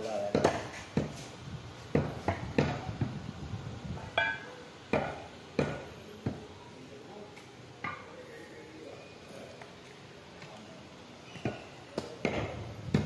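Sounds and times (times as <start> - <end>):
cleaver chopping meat on wood: 0.3 - 1.2, 1.9 - 3.2, 4.9 - 5.9, 11.4 - 13.0
metallic ring: 4.2 - 4.5.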